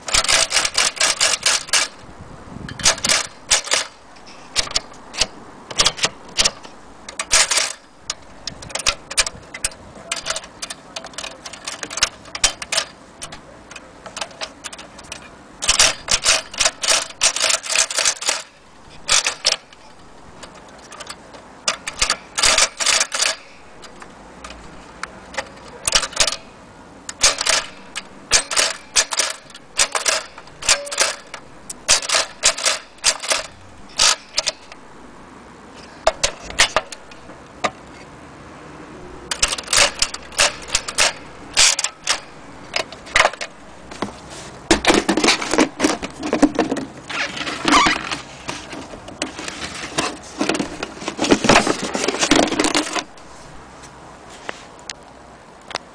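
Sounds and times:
toy typewriter keystrokes clacking: 0:00.1 - 0:02.0, 0:02.8 - 0:04.0, 0:04.6 - 0:13.0, 0:15.6 - 0:18.5, 0:19.1 - 0:19.8, 0:20.9 - 0:23.4, 0:25.3 - 0:26.4, 0:27.1 - 0:34.6, 0:39.3 - 0:43.5.

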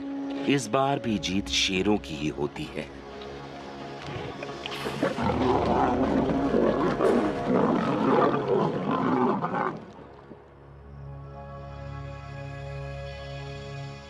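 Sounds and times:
soft music: 0:00.0 - 0:14.0
lions growling: 0:04.0 - 0:10.1.

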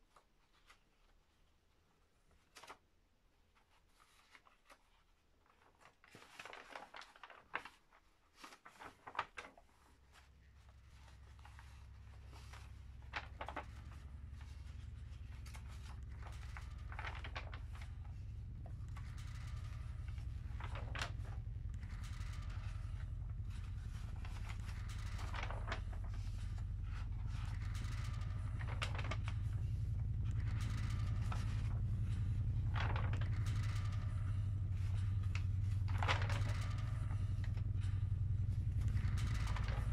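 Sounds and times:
book pages rustling and flipping: 0:00.0 - 0:39.9
low steady rumble: 0:09.8 - 0:39.9.

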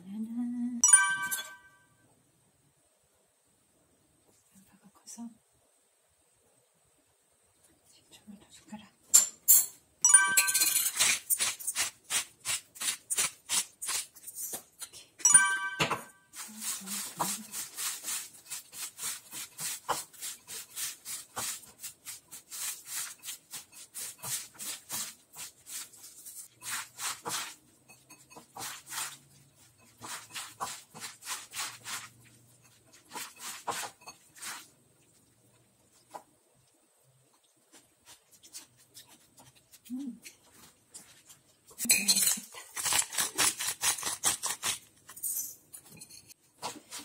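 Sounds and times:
short ringing chime: 0:00.8 - 0:02.0, 0:10.0 - 0:10.8, 0:15.2 - 0:16.3
hands squeezing wet onions: 0:16.3 - 0:27.8, 0:28.4 - 0:41.8.

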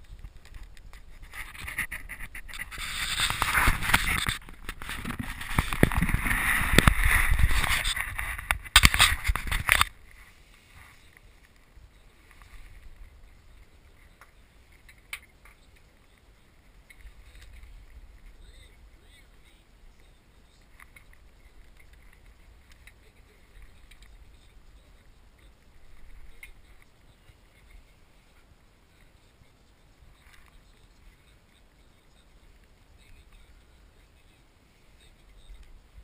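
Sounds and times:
camera being handled: 0:00.2 - 0:09.9
faint wooden clicks: 0:07.9 - 0:34.2.

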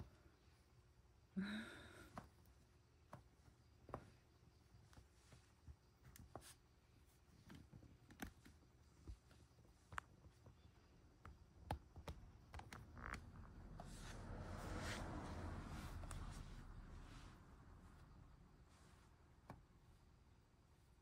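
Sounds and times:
faint clicks and taps: 0:02.1 - 0:13.3.

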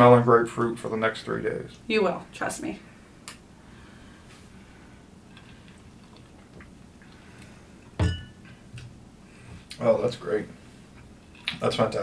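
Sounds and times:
glass knocking on table: 0:08.0 - 0:08.3.

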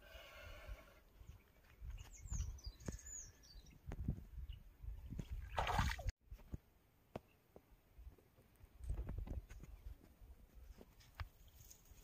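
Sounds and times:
birds chirping: 0:01.1 - 0:05.6
fish splashing into water: 0:05.5 - 0:06.1.

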